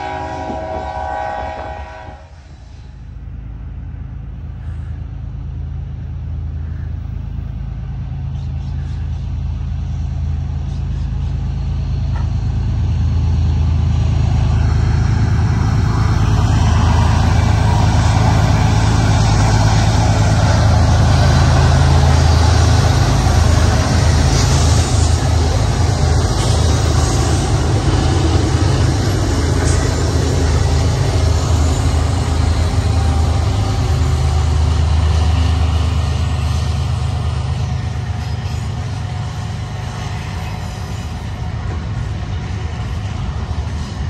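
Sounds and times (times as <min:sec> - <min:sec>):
locomotive engines rumbling: 0:00.0 - 0:44.0.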